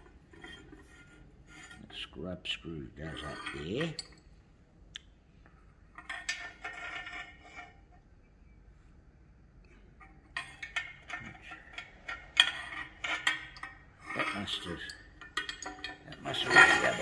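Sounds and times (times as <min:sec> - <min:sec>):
metal tool parts clinking and scraping: 0:03.1 - 0:04.3, 0:06.0 - 0:07.7, 0:10.4 - 0:17.0.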